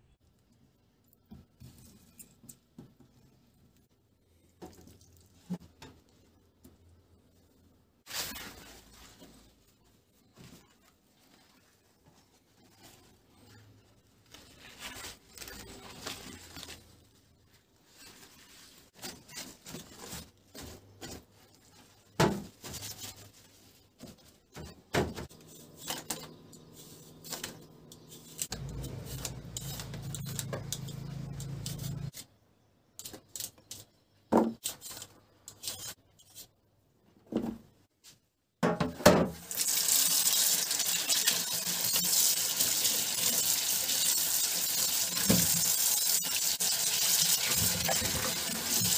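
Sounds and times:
kitchen knocks and rubbing: 0:38.6 - 0:39.4.

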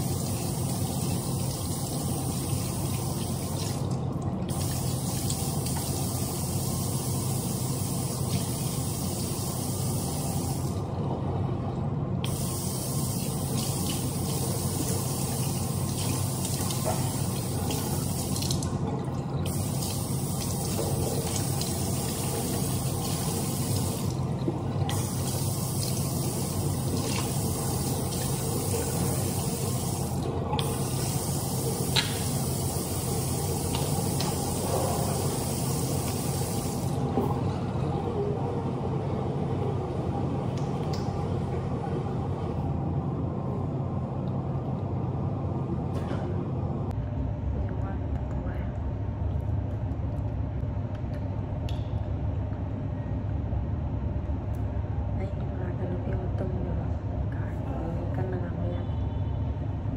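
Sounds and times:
tap water running into sink: 0:13.1 - 0:36.9.

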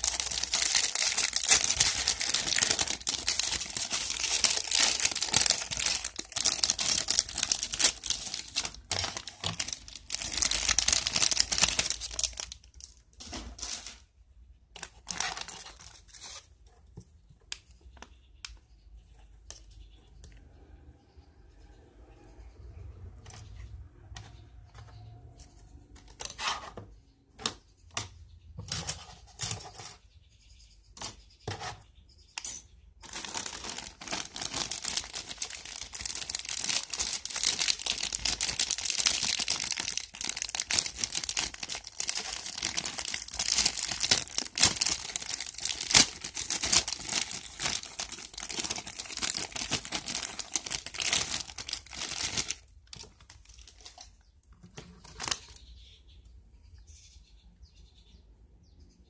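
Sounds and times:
plastic bag crinkling: 0:00.0 - 0:14.0, 0:14.8 - 0:16.5, 0:32.5 - 0:55.6
plastic parts clicking and rustling: 0:00.0 - 0:14.1, 0:24.2 - 0:30.0, 0:32.4 - 0:55.6.

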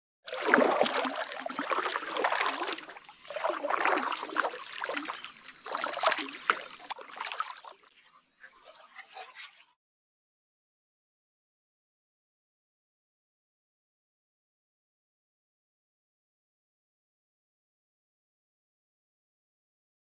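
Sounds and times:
water splashing and trickling: 0:00.3 - 0:09.8.

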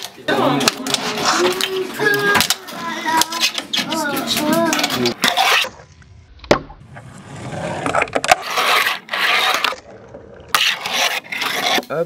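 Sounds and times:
small wheels rolling on wood: 0:06.9 - 0:12.0.

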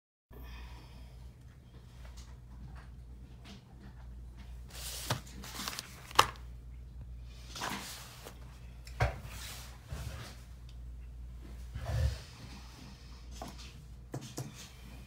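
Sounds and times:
low steady hum: 0:00.3 - 0:15.0
objects rustling and clicking: 0:02.1 - 0:06.5.

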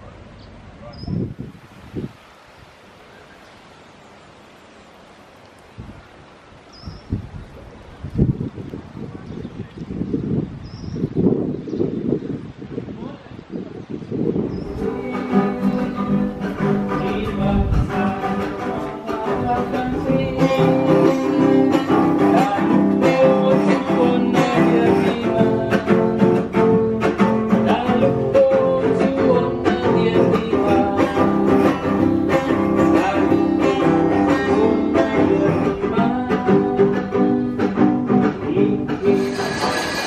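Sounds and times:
plucked string notes: 0:14.6 - 0:40.0.

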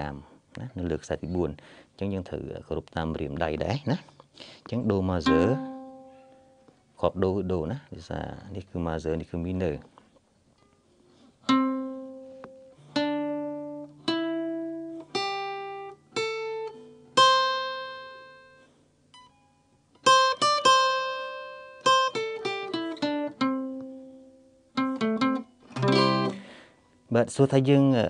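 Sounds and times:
guitar playing a scale: 0:04.9 - 0:07.7, 0:11.1 - 0:27.1.

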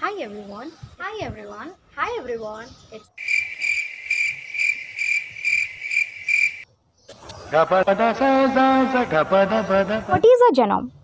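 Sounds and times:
cricket chirping: 0:03.2 - 0:06.6.

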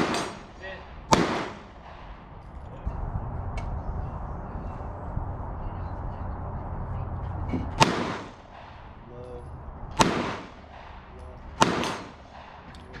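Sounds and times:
pistol shots with echo: 0:00.0 - 0:02.3, 0:07.7 - 0:09.0, 0:09.9 - 0:12.8.

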